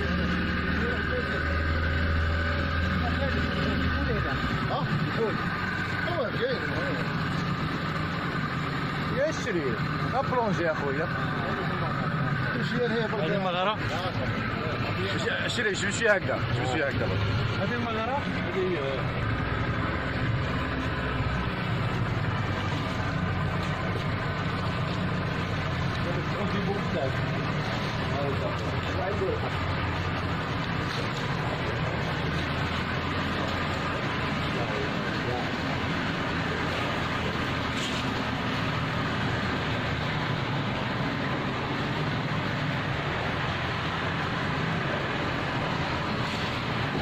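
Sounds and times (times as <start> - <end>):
motorboat engine droning: 0.0 - 47.0
rushing water noise: 0.0 - 47.0.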